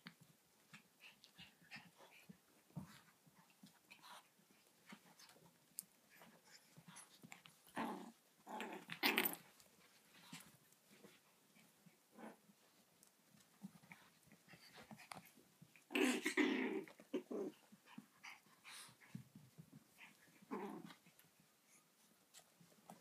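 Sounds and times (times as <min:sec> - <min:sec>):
puppies growling: 0:06.1 - 0:09.6, 0:12.1 - 0:12.5, 0:13.6 - 0:21.8.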